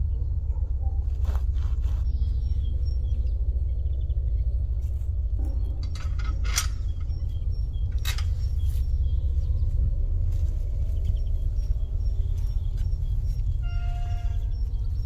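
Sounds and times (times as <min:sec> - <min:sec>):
steady low rumble: 0:00.0 - 0:15.0
faint bird chirps: 0:01.8 - 0:15.0
metallic clicks of a gate: 0:05.4 - 0:08.7.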